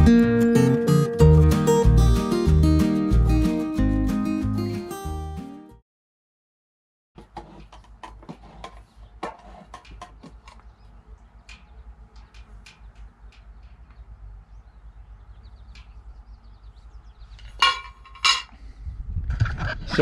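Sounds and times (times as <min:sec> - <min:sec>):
sharp clicks and light taps: 0:09.8 - 0:14.1.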